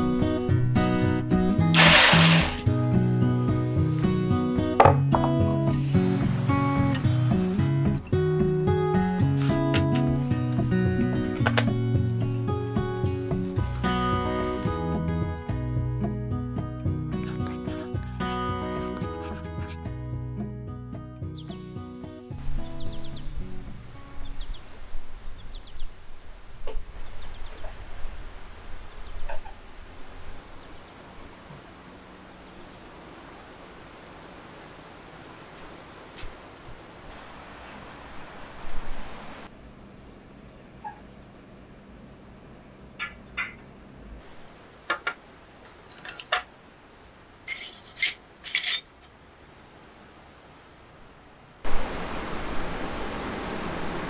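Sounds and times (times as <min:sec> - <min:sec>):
charcoal clinking against glass: 0:01.8 - 0:02.6, 0:45.8 - 0:46.5, 0:47.5 - 0:48.9
small birds chirping: 0:21.2 - 0:21.7, 0:22.5 - 0:28.0, 0:39.7 - 0:45.4
steady hiss: 0:21.4 - 0:40.5, 0:43.8 - 0:54.0
loud steady rushing noise: 0:51.6 - 0:54.0.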